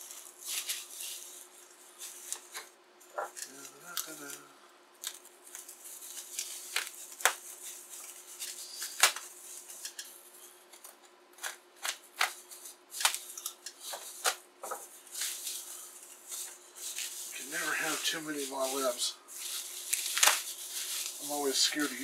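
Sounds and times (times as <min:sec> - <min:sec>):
utility knife slitting bubble wrap: 0:00.0 - 0:02.6, 0:05.0 - 0:10.1, 0:10.7 - 0:14.4, 0:15.0 - 0:22.0
bubble wrap crinkling and crackling: 0:00.0 - 0:22.0.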